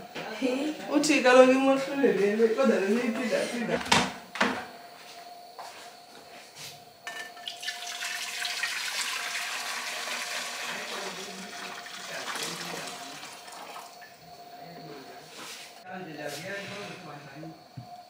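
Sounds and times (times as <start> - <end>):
water pouring into metal pot: 7.4 - 14.2.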